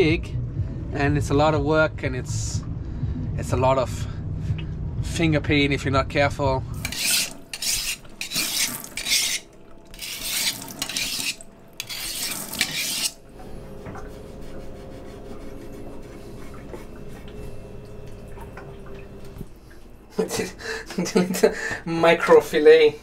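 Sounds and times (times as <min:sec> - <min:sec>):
steady hum: 0:00.0 - 0:23.0
knife cutting on plastic board: 0:06.8 - 0:13.2
knife rasping on metal sharpener: 0:06.8 - 0:13.2
running tap: 0:06.8 - 0:14.1, 0:16.4 - 0:20.0.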